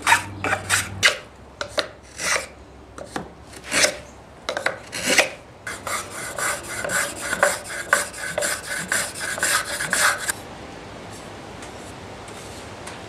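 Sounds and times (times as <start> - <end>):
hand plane scraping wood: 0.0 - 4.0, 4.6 - 10.3.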